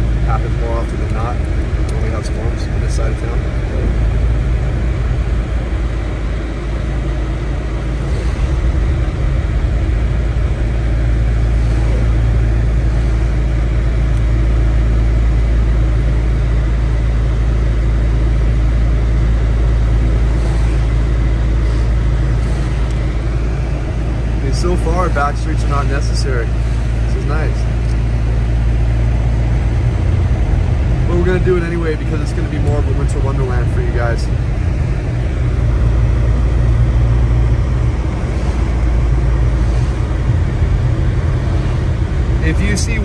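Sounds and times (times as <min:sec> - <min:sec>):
car engine rumble from inside cabin: 0:00.0 - 0:43.0.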